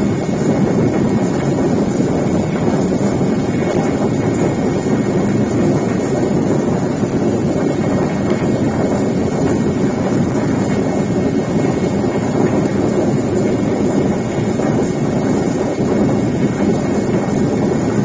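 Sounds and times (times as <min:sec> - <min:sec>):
aircraft engine and airflow noise: 0:00.0 - 0:18.0.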